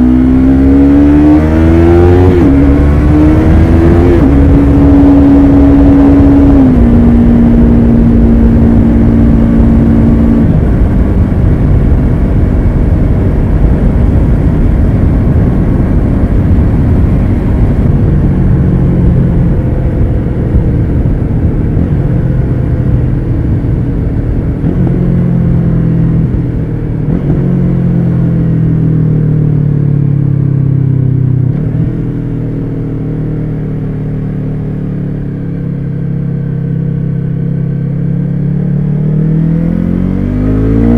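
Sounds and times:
wind rumble on microphone: 0.0s - 32.8s
motorcycle engine cruising: 0.0s - 40.9s.

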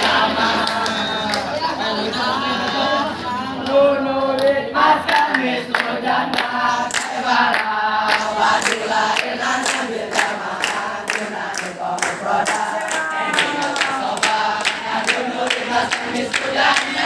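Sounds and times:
boys chanting in unison: 0.0s - 17.0s
clapping in time: 5.1s - 17.0s.

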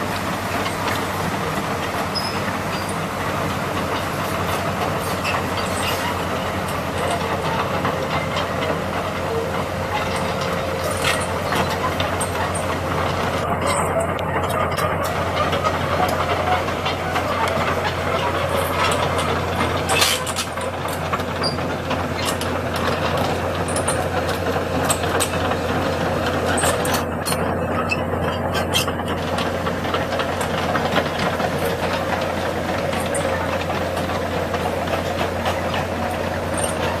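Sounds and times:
diesel engine running: 0.0s - 37.0s
steel tracks clanking on rocks: 0.0s - 37.0s.

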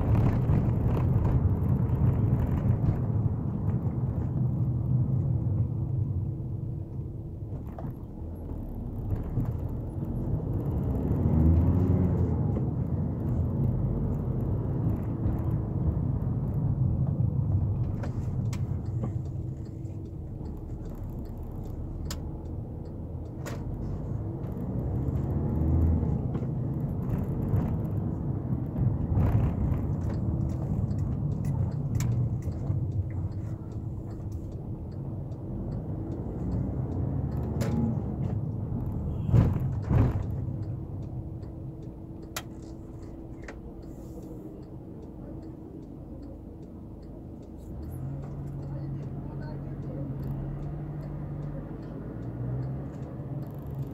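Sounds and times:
diesel engine rumbling in cabin: 0.0s - 53.9s
road noise: 0.0s - 53.9s.

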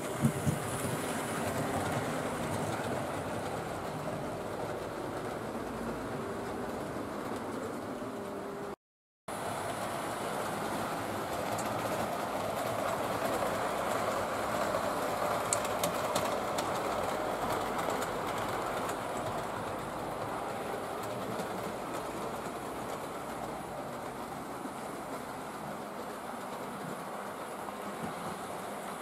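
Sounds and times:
model train motors whirring: 9.4s - 29.0s
faint clicks: 11.3s - 19.9s.

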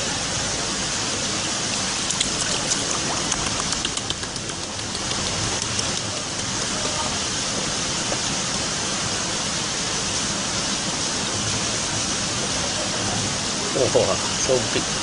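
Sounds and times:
steady hiss: 0.0s - 15.0s
water splashing in plastic basin: 1.7s - 6.7s.

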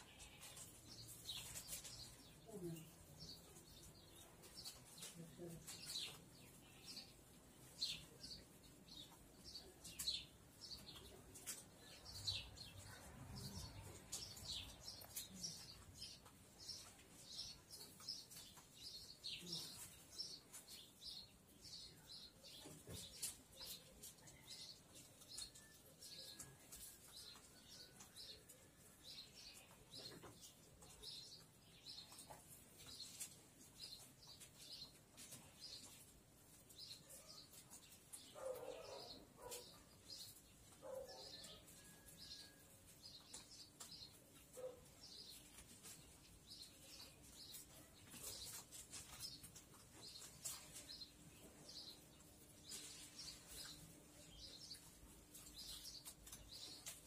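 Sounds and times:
soft rustle: 28.1s - 57.0s.

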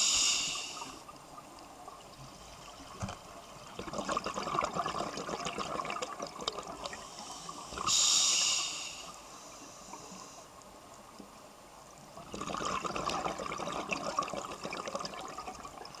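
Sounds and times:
regulator inhalation hiss: 0.0s - 1.1s, 6.9s - 10.5s
underwater bubbles gurgling: 0.2s - 8.1s, 11.9s - 16.0s.

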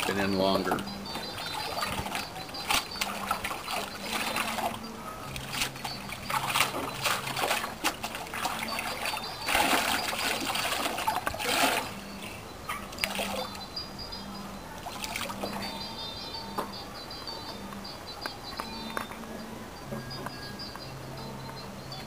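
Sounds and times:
water splashing in a plastic tub: 0.0s - 12.0s, 12.8s - 13.6s, 14.8s - 15.7s
water dripping: 0.0s - 22.0s.

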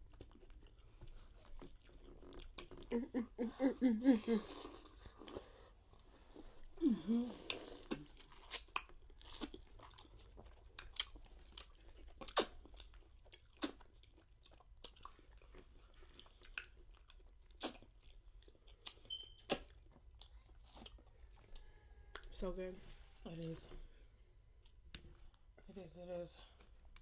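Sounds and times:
chewing and wet lip smacks: 0.0s - 3.0s, 7.4s - 22.4s.

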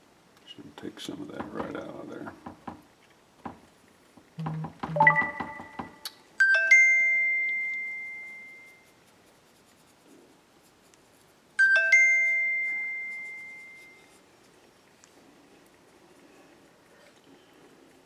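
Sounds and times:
three-note chime: 5.0s - 5.8s.

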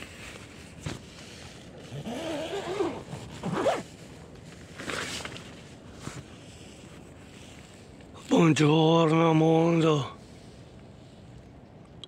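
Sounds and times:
tent door zipper: 1.8s - 4.0s.

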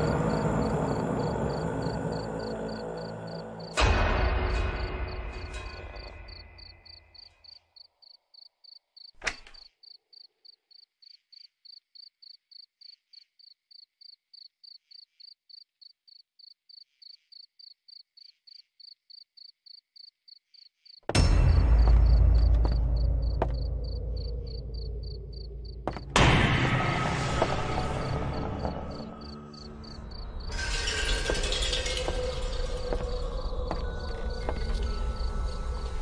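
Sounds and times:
cricket chirping: 0.0s - 36.0s.

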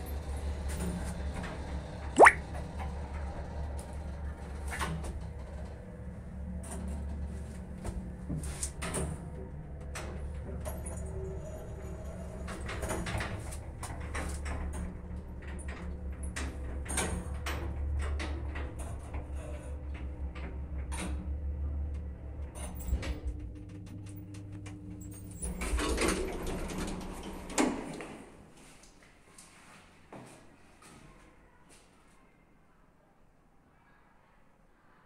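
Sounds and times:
elevator clicks and rattles: 22.7s - 28.3s
elevator doors sliding open: 22.8s - 28.3s.

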